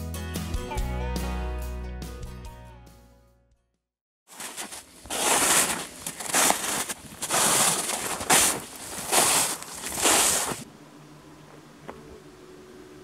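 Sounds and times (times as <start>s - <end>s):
footsteps crunching through snow: 4.3s - 10.7s.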